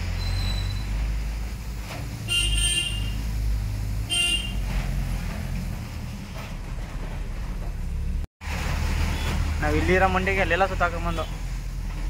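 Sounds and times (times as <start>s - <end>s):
truck engine drone: 0.0s - 12.0s
vehicle horn blasts: 2.2s - 3.2s, 4.1s - 4.7s.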